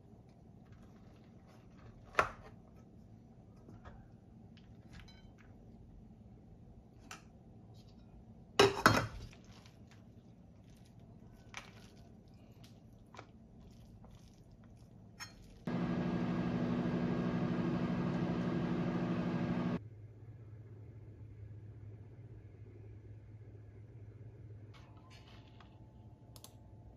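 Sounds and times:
kitchenware clatter: 8.6s - 9.4s
microwave oven humming: 15.7s - 19.8s.

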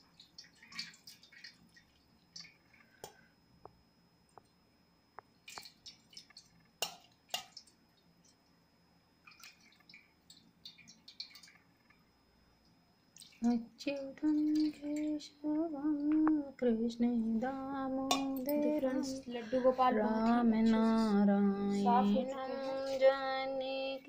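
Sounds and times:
water pouring and splashing on plate: 0.0s - 3.2s, 5.4s - 8.4s, 9.2s - 11.7s, 13.1s - 15.2s.

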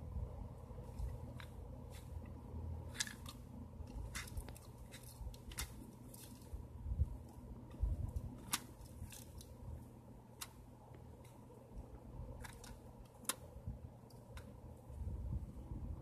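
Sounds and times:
plastic and cardboard clicks: 7.7s - 9.5s, 12.4s - 13.5s.

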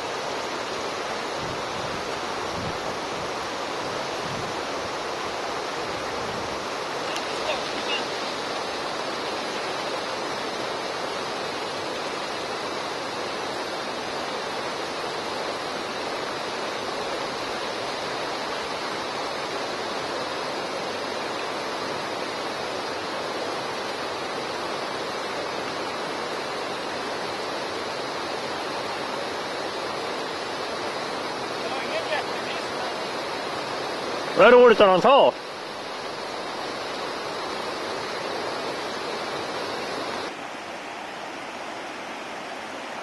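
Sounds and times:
river rushing through rapids: 0.0s - 43.0s.

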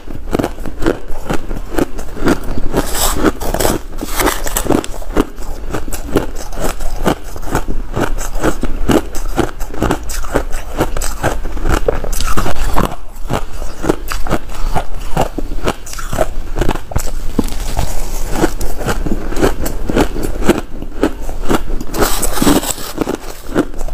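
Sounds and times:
ice crunching being chewed: 0.0s - 23.9s
metal spoon scraping ice: 2.7s - 7.4s, 21.9s - 23.8s.

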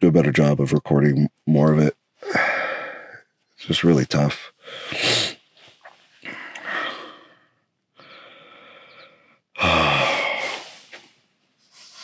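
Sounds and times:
man sighing loudly: 2.2s - 3.2s, 9.6s - 10.9s
man drawing a long breath: 6.2s - 11.0s.

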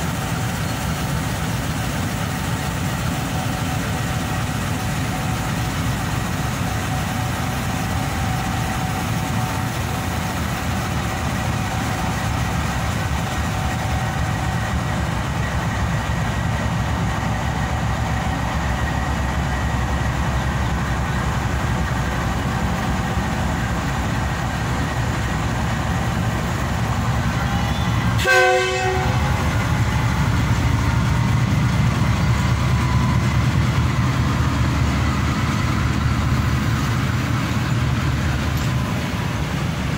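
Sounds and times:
diesel locomotive running: 0.0s - 39.9s
train wheels on rails: 0.0s - 39.9s
train horn blast: 27.4s - 29.4s.

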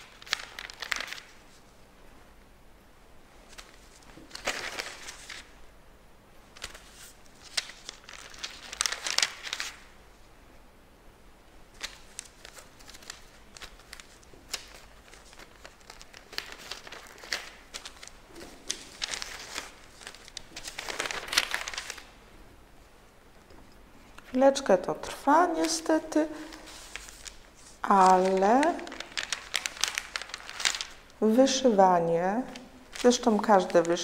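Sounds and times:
paper rustling and crinkling: 0.0s - 1.8s, 3.5s - 5.5s, 6.6s - 9.9s, 11.7s - 22.1s, 25.0s - 31.1s, 32.6s - 34.0s.

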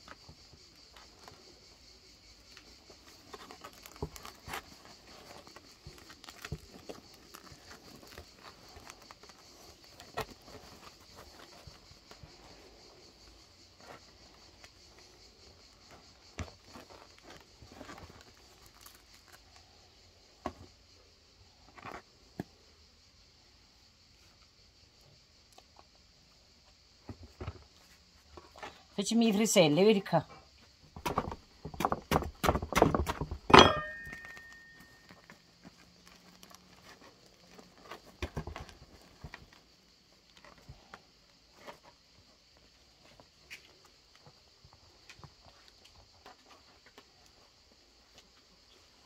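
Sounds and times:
crusty bread crackling: 2.4s - 19.7s, 34.1s - 49.0s.

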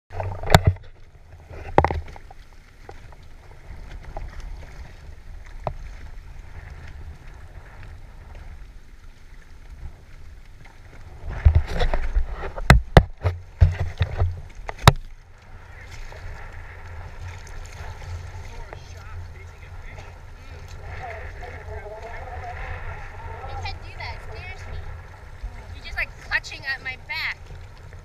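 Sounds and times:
water lapping against kayak: 0.1s - 28.0s
water sloshing: 0.1s - 28.0s
wind rumbling on microphone: 0.1s - 28.0s.

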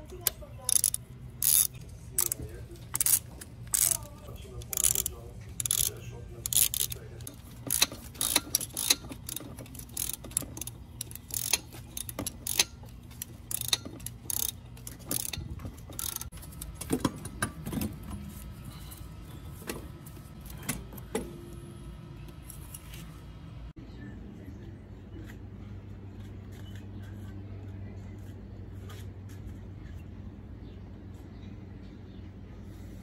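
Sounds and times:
metallic clicking of hand tools: 0.1s - 17.6s.

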